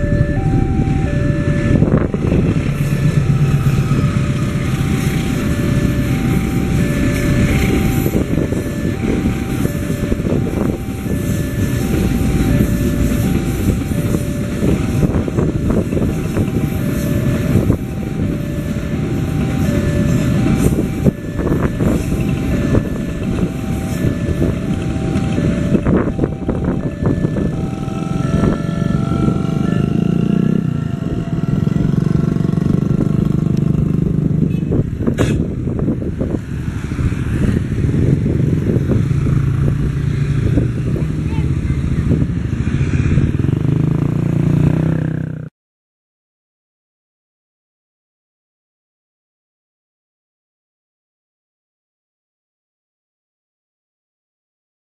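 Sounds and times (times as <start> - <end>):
two-tone crossing alarm: 0.0 - 32.4
freight train rumbling: 0.0 - 44.2.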